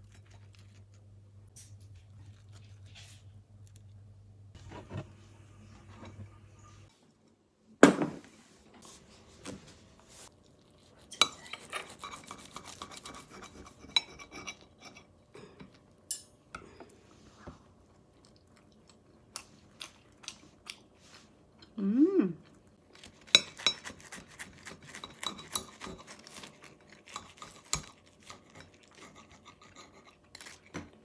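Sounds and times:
knife and fork scraping plate: 11.2s - 15.1s.

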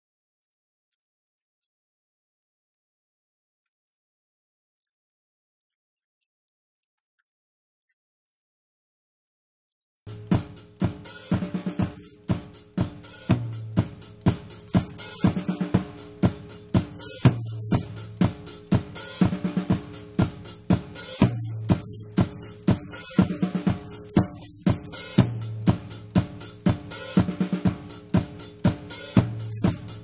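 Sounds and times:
drum kit groove: 10.1s - 30.0s.

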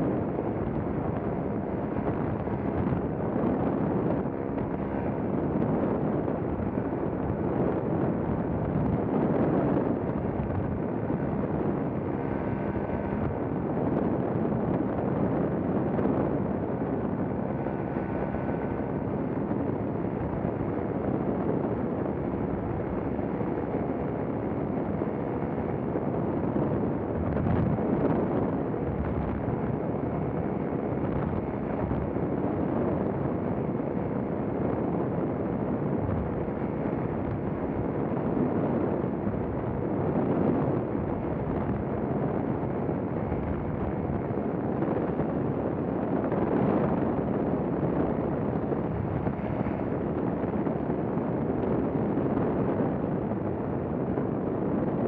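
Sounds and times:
wind rushing over microphone: 0.0s - 55.0s.

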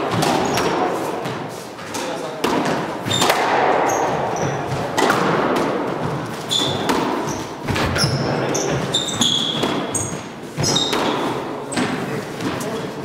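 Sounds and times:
squash ball knocks: 0.0s - 8.1s
shoes squeaking on hardwood: 3.0s - 4.9s, 6.0s - 11.9s.

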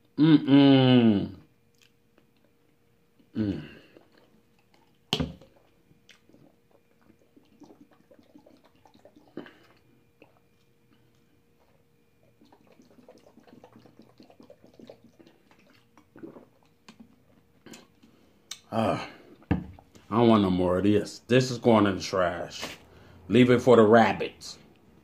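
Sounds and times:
person gulping water: 3.2s - 19.9s.

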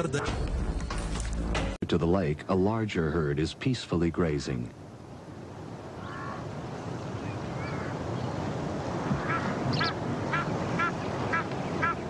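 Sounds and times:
outdoor background hiss: 0.0s - 12.0s
bird calling: 6.0s - 12.0s.

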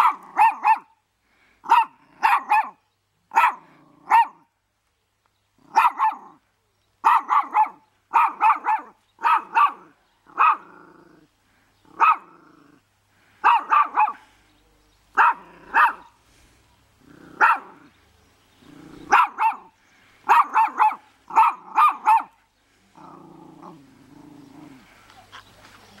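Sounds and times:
small dog barking: 0.0s - 1.0s, 1.6s - 4.5s, 5.6s - 6.4s, 7.0s - 10.8s, 11.9s - 12.4s, 13.4s - 14.3s, 15.2s - 16.1s, 17.2s - 17.9s, 18.8s - 22.4s.

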